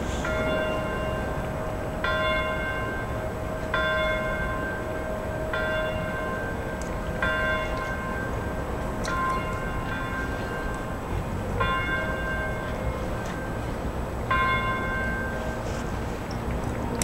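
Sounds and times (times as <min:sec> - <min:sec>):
large bell ringing: 0:00.0 - 0:15.7
low city harbour rumble: 0:00.0 - 0:17.0.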